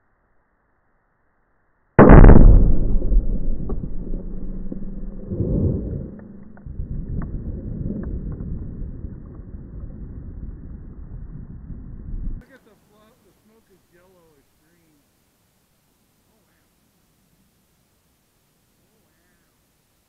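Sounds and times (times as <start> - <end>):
explosive target blast: 2.0 - 7.3
long rolling rumble: 2.0 - 12.4.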